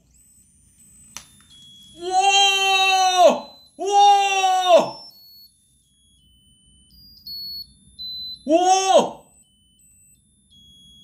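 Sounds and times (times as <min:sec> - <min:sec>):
high electronic beeping tune: 0:03.4 - 0:08.6
man saying ooh: 0:08.5 - 0:09.3.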